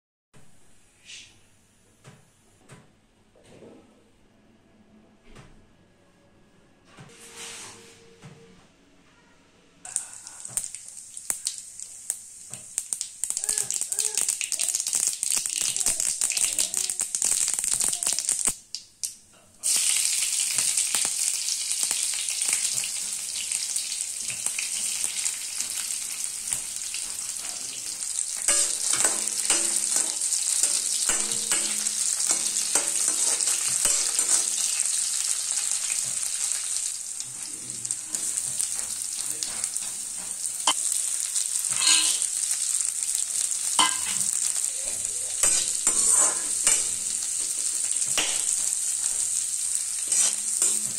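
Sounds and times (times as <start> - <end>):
spices sizzling in hot oil: 9.9 - 50.9
metal spoon scraping a pan: 28.4 - 34.9, 41.7 - 42.3, 43.8 - 49.4, 50.0 - 50.9.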